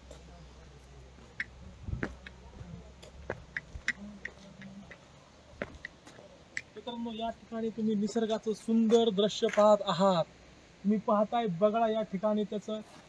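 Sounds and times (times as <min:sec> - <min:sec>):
footsteps on concrete: 0:00.0 - 0:06.7
low wind rumble on microphone: 0:01.6 - 0:03.8.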